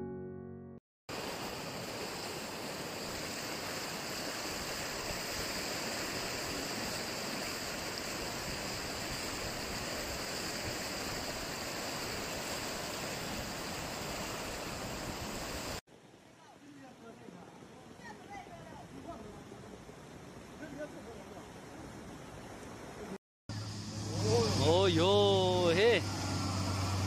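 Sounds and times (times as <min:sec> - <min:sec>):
piano tune: 0:00.0 - 0:00.8
fast-flowing river rushing: 0:01.1 - 0:15.8.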